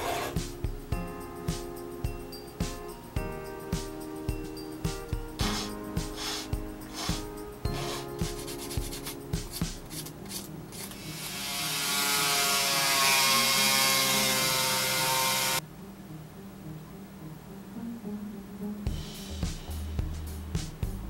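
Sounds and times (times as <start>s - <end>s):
file rasping on wood: 0.0s - 0.4s, 5.4s - 10.4s.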